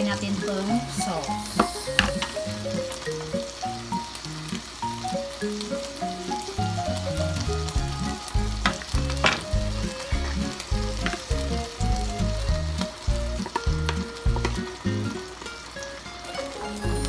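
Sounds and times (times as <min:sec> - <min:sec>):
fish sizzling in a frying pan: 0:00.0 - 0:17.0
background music with bass line: 0:06.6 - 0:15.2, 0:16.8 - 0:17.0.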